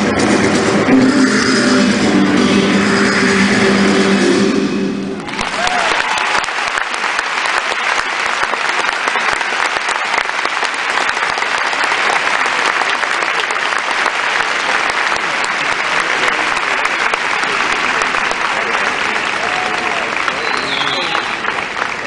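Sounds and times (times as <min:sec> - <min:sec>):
audience applauding: 0:05.2 - 0:22.0.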